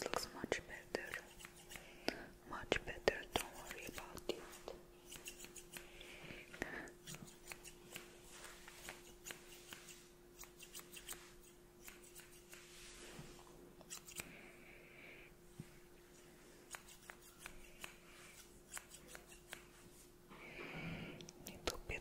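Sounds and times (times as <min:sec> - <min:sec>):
faint steady hum: 0:00.0 - 0:22.0
scissors snipping: 0:01.1 - 0:01.8, 0:05.1 - 0:05.9, 0:07.0 - 0:08.1, 0:08.8 - 0:12.6, 0:13.8 - 0:14.3, 0:16.7 - 0:19.7.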